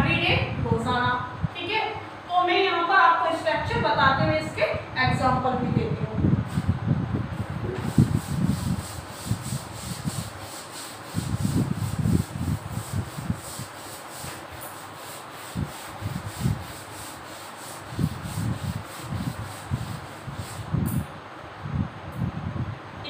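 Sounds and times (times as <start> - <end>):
duster rubbing on chalkboard: 7.7 - 20.8.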